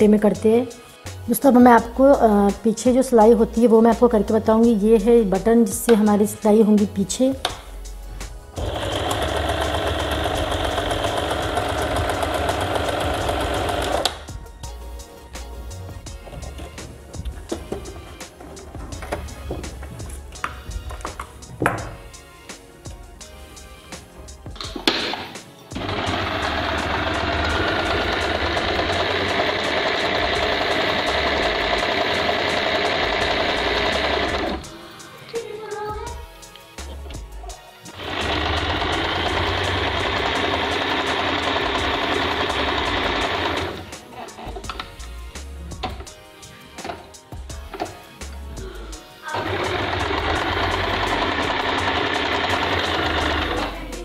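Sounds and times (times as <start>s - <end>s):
electric sewing machine running: 8.5s - 14.3s, 25.8s - 34.7s, 37.9s - 43.9s, 49.2s - 53.8s.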